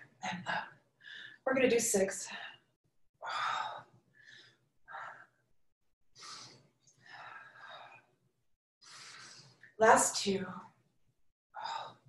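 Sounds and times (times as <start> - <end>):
woman breathing: 1.0 - 1.4, 2.3 - 5.5, 6.2 - 8.2, 8.8 - 9.8, 11.6 - 12.0.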